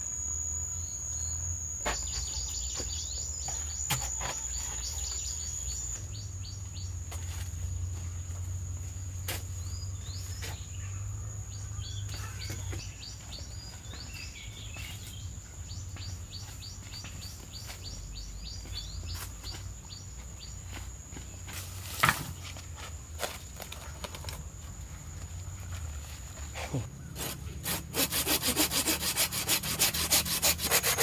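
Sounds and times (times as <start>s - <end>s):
birds chirping: 0.0s - 7.0s, 9.6s - 20.7s
high-pitched insect drone: 0.0s - 10.3s.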